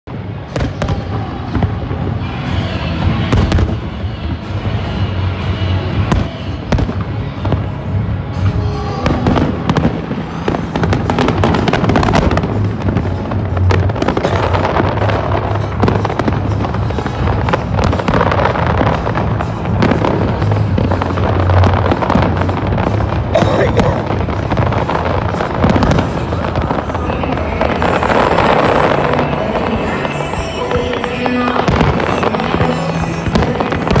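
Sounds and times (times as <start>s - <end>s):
fireworks bursting and crackling: 0.1s - 34.0s.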